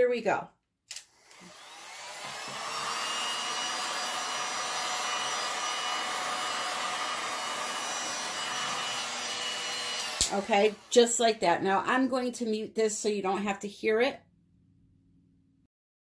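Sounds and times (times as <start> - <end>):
heat gun fan blowing: 1.2 - 11.4.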